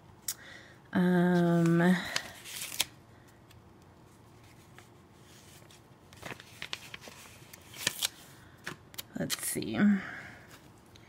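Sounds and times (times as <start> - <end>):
paper rustling: 1.4 - 2.9, 4.3 - 8.8.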